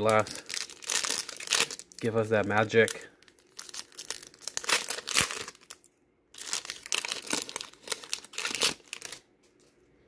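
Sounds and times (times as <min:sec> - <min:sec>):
foil wrapper crinkling: 0:00.0 - 0:09.3.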